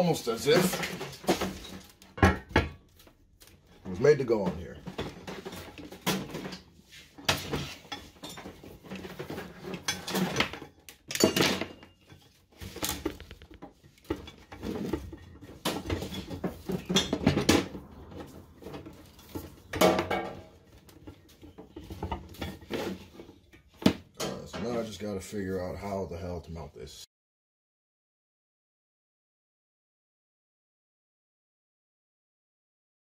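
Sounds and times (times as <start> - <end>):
metal clanks and knocks: 0.1 - 2.9, 3.6 - 25.0.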